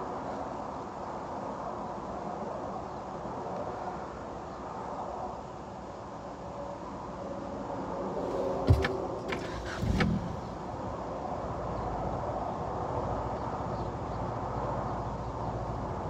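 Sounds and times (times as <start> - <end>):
car engine starting and idling: 8.2 - 10.7
clicks in car cabin: 8.4 - 10.2.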